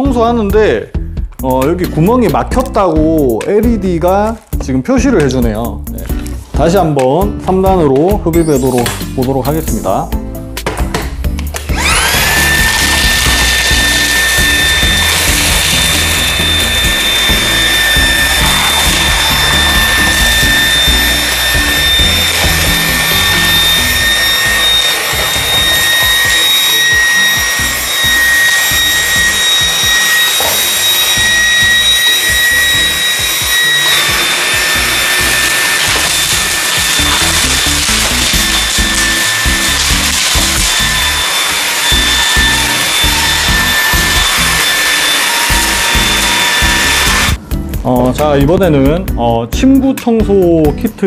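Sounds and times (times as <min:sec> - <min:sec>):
stick vacuum motor whine: 0:11.4 - 0:47.4.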